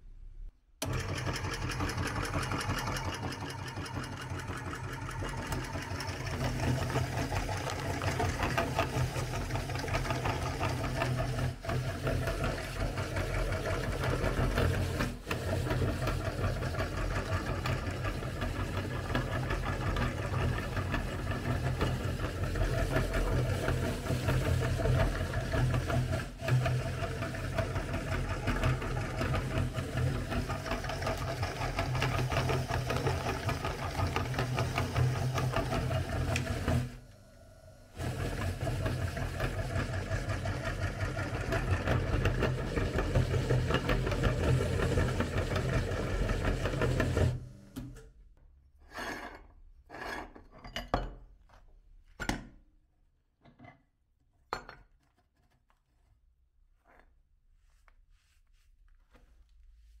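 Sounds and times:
meat grinder grinding cookies: 0:00.8 - 0:47.8.

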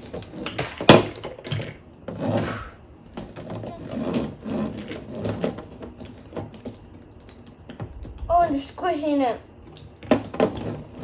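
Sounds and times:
toy wheels rolling on wood: 0:00.0 - 0:08.2.

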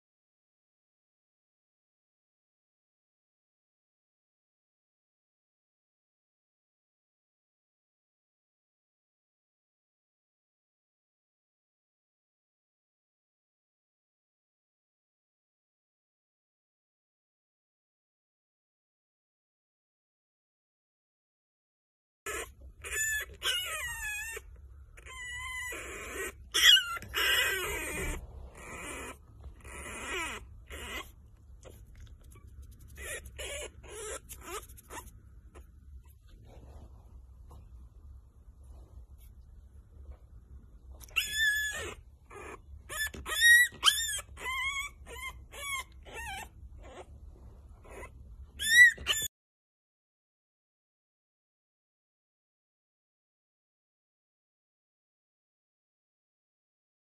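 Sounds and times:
puppy whining and squealing: 0:22.3 - 0:36.8, 0:40.9 - 0:49.3.

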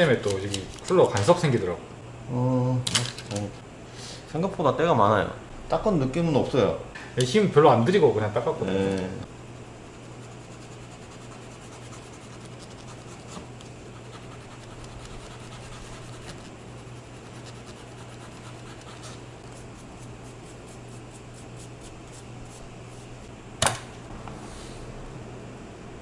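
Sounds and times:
eraser rubbing on metal contacts: 0:10.0 - 0:22.7.

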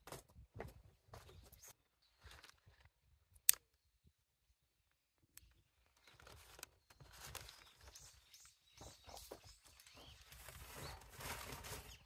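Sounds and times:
paper crackling as it burns: 0:05.8 - 0:08.4.

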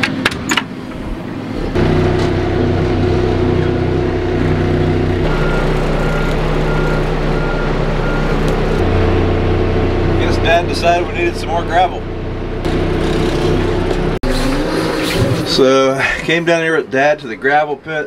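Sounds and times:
diesel engine running: 0:00.7 - 0:14.7
reversing alarm beeping: 0:05.2 - 0:08.8.

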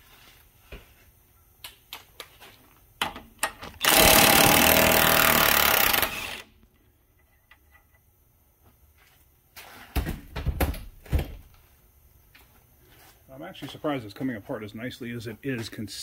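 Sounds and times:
impact wrench hammering: 0:03.8 - 0:06.4.

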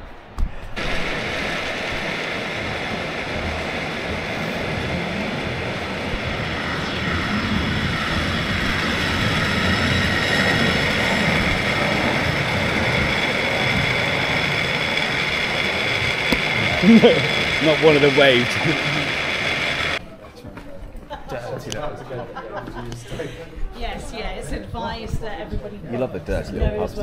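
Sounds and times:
aircraft engine rush and whine: 0:00.0 - 0:20.0.

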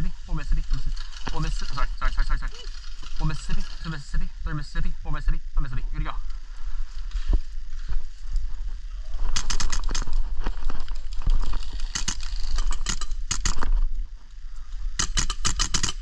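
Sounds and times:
airsoft rifle firing bursts: 0:11.8 - 0:13.7, 0:15.0 - 0:16.0.

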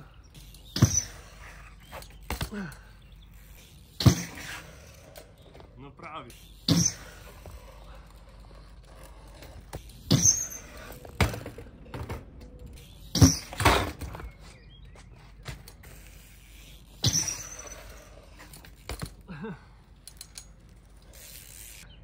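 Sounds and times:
bike landing thumps on concrete: 0:00.6 - 0:02.8, 0:03.9 - 0:05.6, 0:06.6 - 0:07.7, 0:09.6 - 0:16.0, 0:16.9 - 0:17.8, 0:18.4 - 0:19.2.

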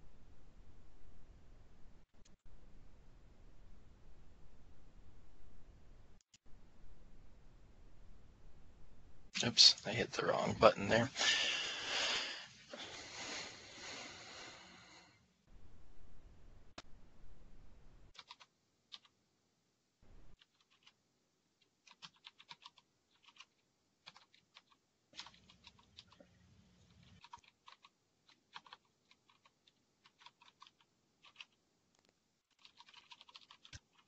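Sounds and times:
typing on computer keyboard: 0:18.1 - 0:19.1, 0:20.4 - 0:21.0, 0:21.6 - 0:26.3, 0:27.1 - 0:31.6, 0:32.5 - 0:34.0.

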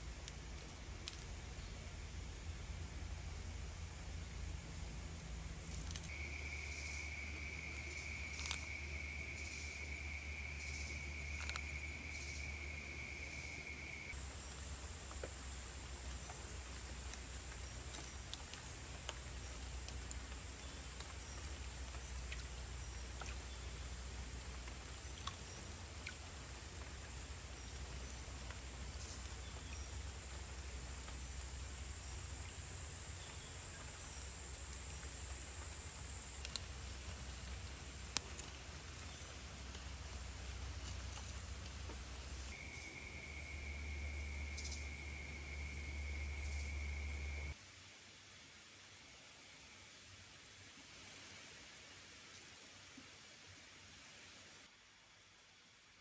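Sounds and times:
insect high buzz: 0:05.6 - 0:14.2, 0:42.4 - 0:47.6
insect high trill: 0:05.7 - 0:14.2, 0:42.4 - 0:47.6.

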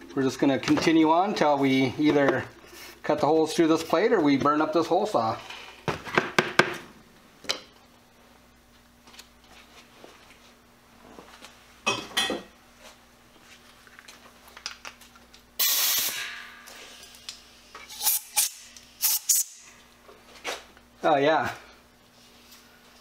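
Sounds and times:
compressed air hiss: 0:15.6 - 0:16.2, 0:17.9 - 0:19.6.

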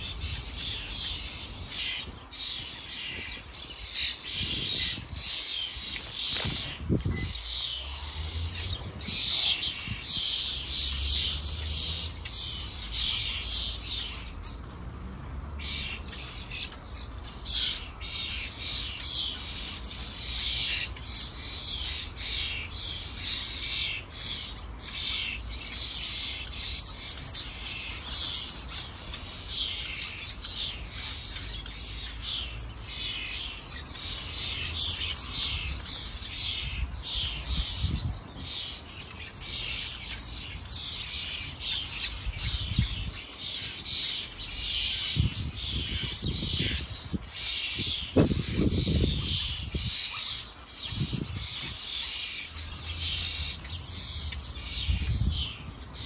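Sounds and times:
birds chirping and twittering: 0:00.0 - 0:56.0.

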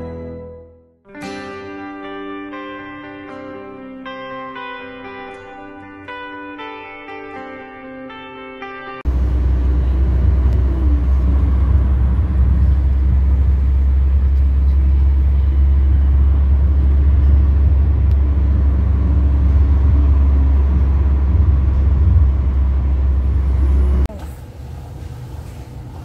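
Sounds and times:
car road and engine rumble: 0:09.1 - 0:26.0.

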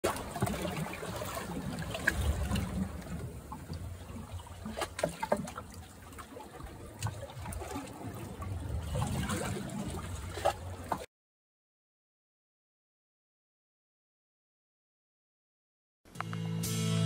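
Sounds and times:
water trickling: 0:00.0 - 0:11.1.

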